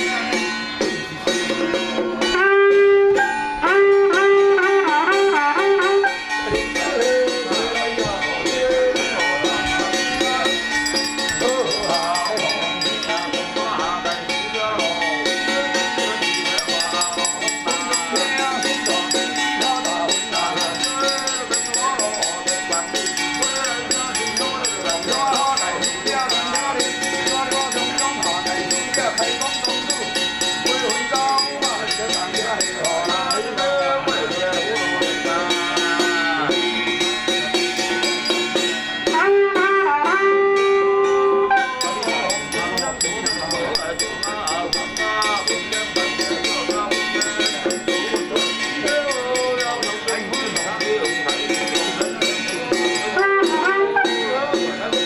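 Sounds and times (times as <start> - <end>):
drum and small cymbals beat: 6.5 - 39.2, 41.8 - 55.0
jingling rattling percussion: 6.6 - 39.2, 41.7 - 55.0
wavering melody: 10.1 - 33.9, 37.3 - 39.0, 41.6 - 54.2.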